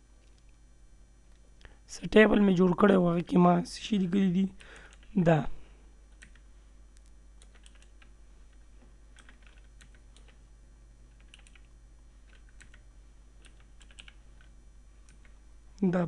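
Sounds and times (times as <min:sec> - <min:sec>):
computer keyboard typing: 0:04.6 - 0:05.1, 0:06.1 - 0:06.4, 0:07.4 - 0:10.4, 0:11.1 - 0:15.4.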